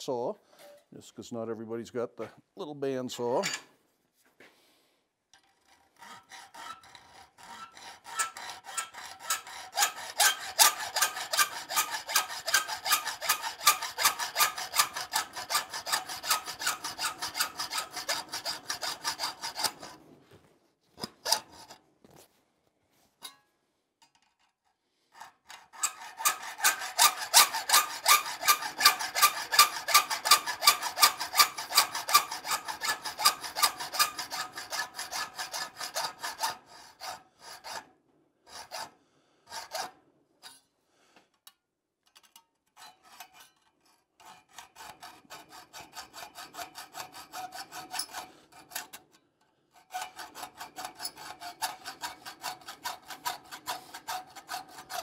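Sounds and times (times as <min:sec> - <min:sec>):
hacksaw cutting metal: 0:05.4 - 0:20.0, 0:21.0 - 0:21.8, 0:25.1 - 0:37.9, 0:38.5 - 0:40.6, 0:42.2 - 0:55.0.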